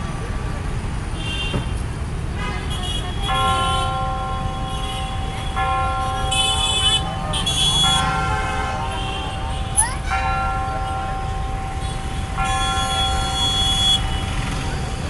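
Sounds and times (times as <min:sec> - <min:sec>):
city traffic: 0:00.0 - 0:15.0
car horns: 0:01.2 - 0:01.8, 0:02.4 - 0:10.0, 0:11.8 - 0:15.0
clock tower bell striking: 0:03.3 - 0:14.6.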